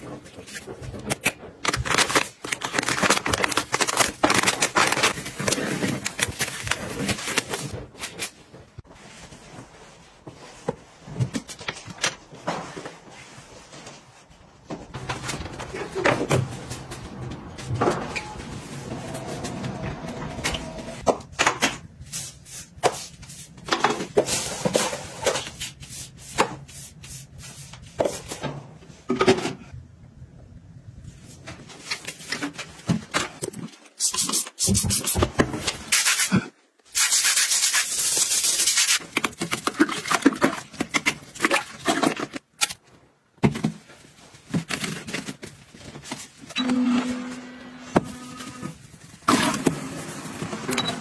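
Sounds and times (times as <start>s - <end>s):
toilet brush scrubbing bowl: 37.0s - 39.0s.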